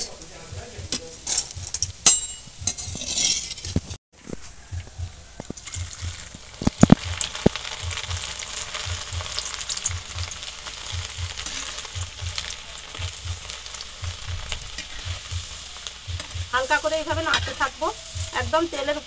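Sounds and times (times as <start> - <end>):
lentils sizzling in hot oil: 4.8 - 19.0.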